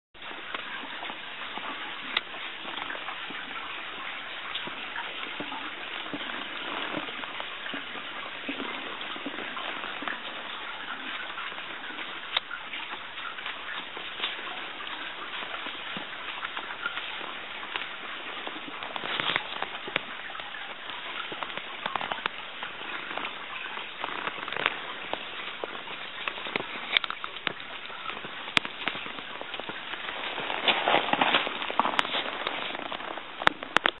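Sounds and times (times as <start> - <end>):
babbling brook: 0.2 - 34.0
sharp clicks and crackles: 0.2 - 34.0.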